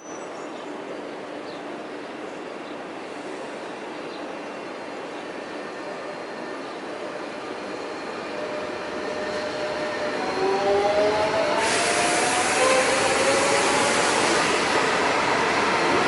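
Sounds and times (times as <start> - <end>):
electric train rumbling past: 1.0 - 16.0
loud rushing hiss of passing cars: 2.9 - 4.1, 10.4 - 16.0.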